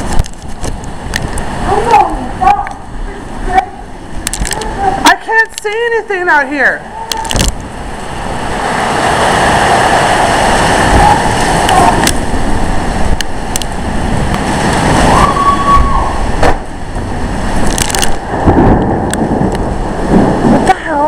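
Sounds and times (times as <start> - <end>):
driving rain: 0.0 - 21.0
wind buffeting microphone: 0.0 - 21.0
sharp knocks: 16.4 - 16.7.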